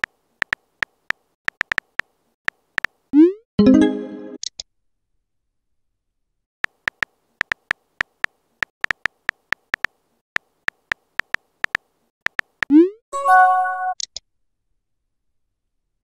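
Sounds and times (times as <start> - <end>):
phone keyboard typing clicks: 0.0 - 3.0, 6.6 - 12.7.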